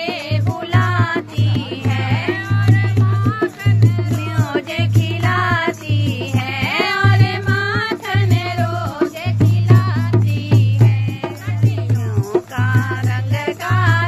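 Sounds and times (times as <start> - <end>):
person singing folk melody: 0.0 - 5.2
drums beating: 0.0 - 14.0.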